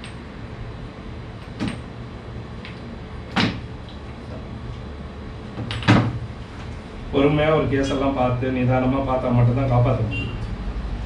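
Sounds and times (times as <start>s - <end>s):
steady low hum: 0.0s - 11.0s
sharp knocks: 3.3s - 3.7s.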